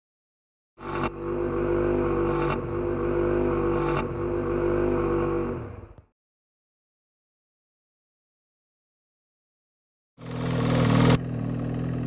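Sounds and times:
snowmobile engine idling loudly: 0:10.2 - 0:12.0.

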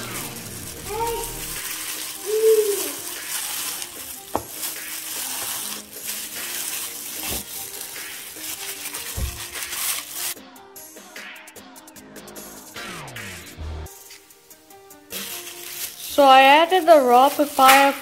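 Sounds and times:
plastic gloves rustling: 0:00.0 - 0:10.4, 0:14.5 - 0:18.0
wet squelching marinade: 0:01.4 - 0:10.4.

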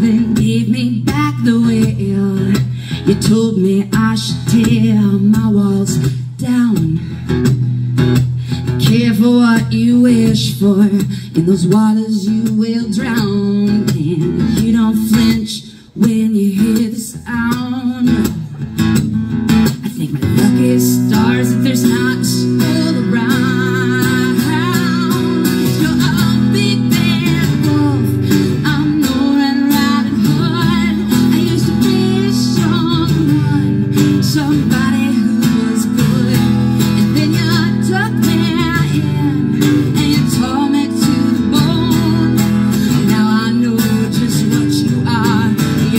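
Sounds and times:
woman singing: 0:00.0 - 0:18.6, 0:19.6 - 0:45.9
strummed acoustic guitar: 0:00.0 - 0:45.9.

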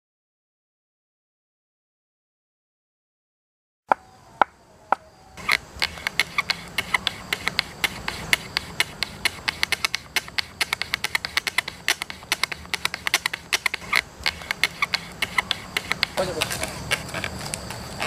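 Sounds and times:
cane strip sawing under log: 0:05.4 - 0:17.4.

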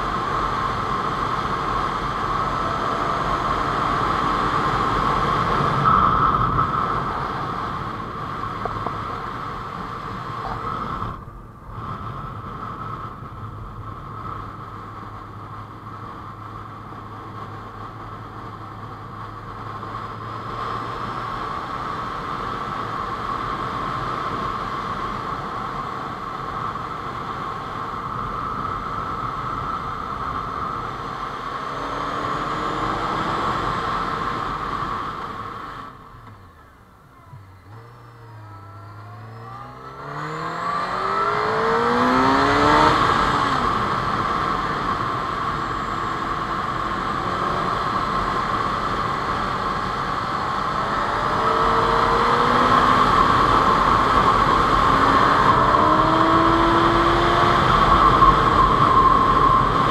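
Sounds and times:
wind rush: 0:00.0 - 0:15.5.

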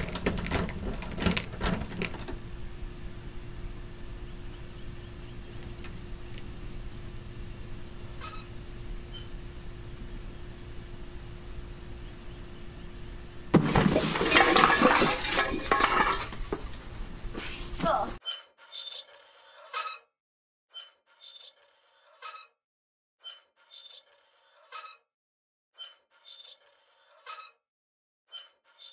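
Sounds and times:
faint steady hum: 0:00.0 - 0:18.2
person falling with crash: 0:13.6 - 0:16.4.

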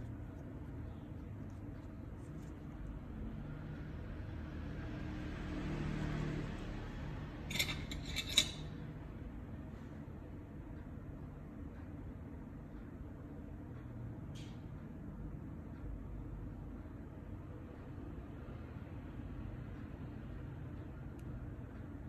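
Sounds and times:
steady low hum: 0:00.0 - 0:05.4
metallic clicks of tools: 0:07.5 - 0:08.8.

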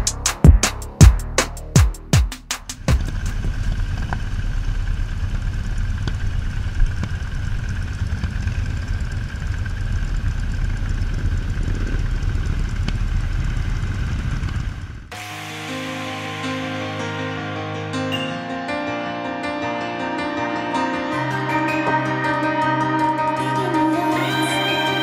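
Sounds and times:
motorcycle engines rumbling: 0:02.7 - 0:15.1.

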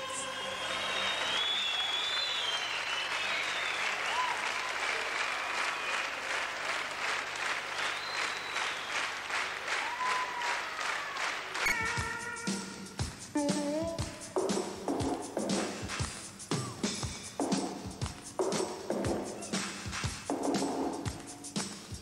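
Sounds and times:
whistles: 0:00.0 - 0:06.1, 0:07.8 - 0:09.2, 0:09.8 - 0:10.6
audience applauding: 0:00.0 - 0:12.9
rhythmic clapping in unison: 0:00.0 - 0:22.0.

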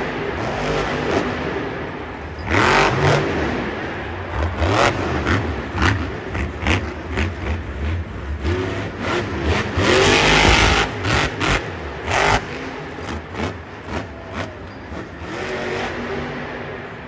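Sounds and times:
truck engine revving hard: 0:02.4 - 0:16.4.

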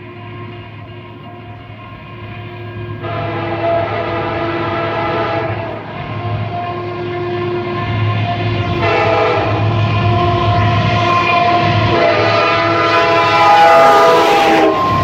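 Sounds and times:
locomotive engine rumble: 0:00.0 - 0:15.0
train air horn blasts: 0:00.0 - 0:15.0.

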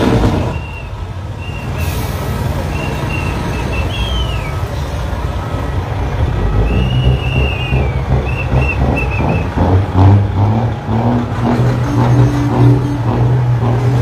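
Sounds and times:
truck diesel engine running: 0:00.0 - 0:14.0
whistled notes: 0:00.4 - 0:04.7, 0:06.4 - 0:09.6.

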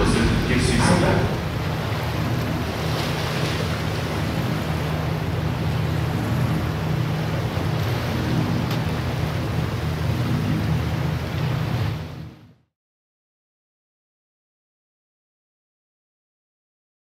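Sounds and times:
wash of noise: 0:00.0 - 0:12.6
constant low hum: 0:00.0 - 0:12.7.

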